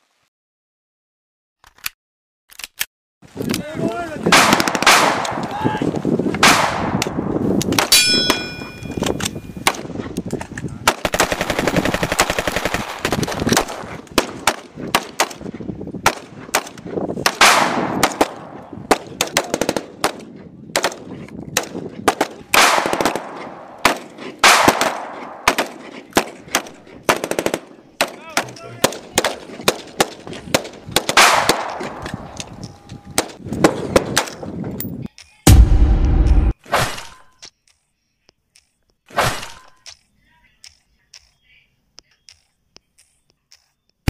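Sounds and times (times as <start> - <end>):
single gunshots: 4.3 - 5.5, 6.4 - 8.4, 16.0 - 28.2, 28.8 - 32.4, 35.5 - 37.2
machine-gun burst: 10.9 - 14.6.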